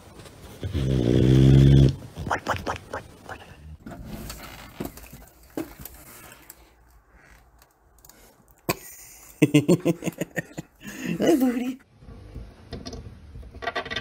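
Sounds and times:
scuffling and rustling: 0.0 - 2.3.

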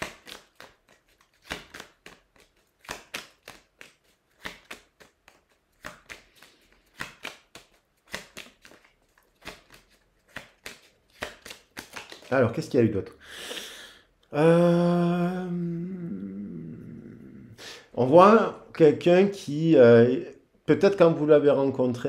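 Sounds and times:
cards being shuffled: 0.0 - 12.7.

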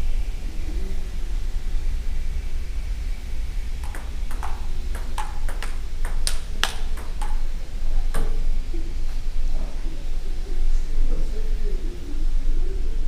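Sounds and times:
table tennis ball clicks: 3.8 - 8.4.

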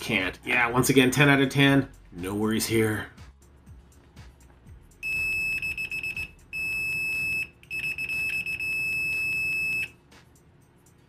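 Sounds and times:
multimeter high-pitched beep: 5.0 - 10.0.

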